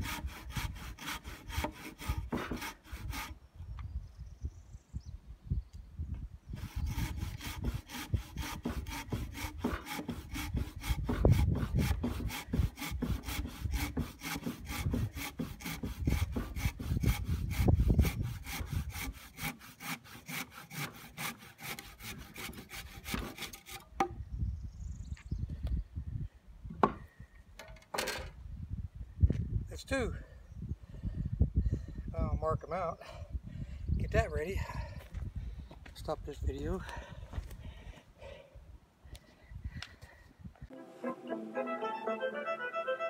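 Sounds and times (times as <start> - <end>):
handsaw cutting timber: 0.0 - 3.4, 6.6 - 23.9.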